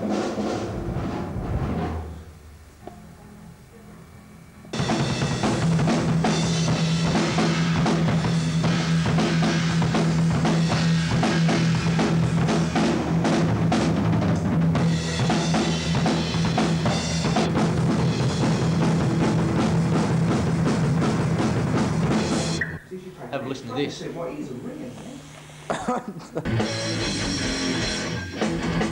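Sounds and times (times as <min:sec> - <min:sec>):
metal band playing: 0:04.7 - 0:22.7, 0:26.4 - 0:28.9.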